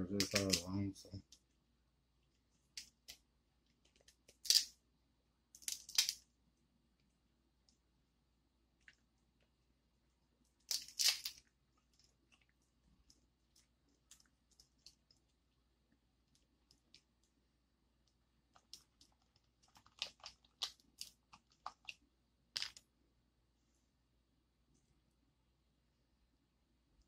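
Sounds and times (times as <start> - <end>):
crab shell cracking: 3.8 - 4.7, 5.6 - 6.2, 10.6 - 12.0, 18.6 - 22.8.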